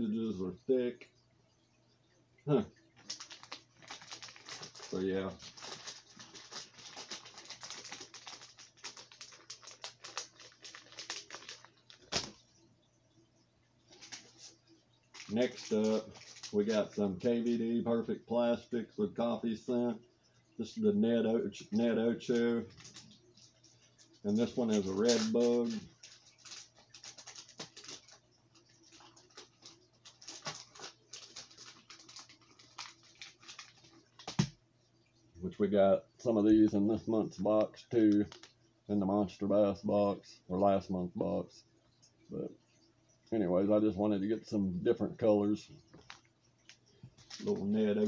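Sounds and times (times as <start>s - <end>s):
faint low hum: 0.0s - 48.0s
plastic bag crinkling: 3.0s - 12.4s, 13.9s - 17.3s, 21.7s - 23.3s, 23.9s - 34.6s, 38.2s - 38.6s, 45.9s - 48.0s.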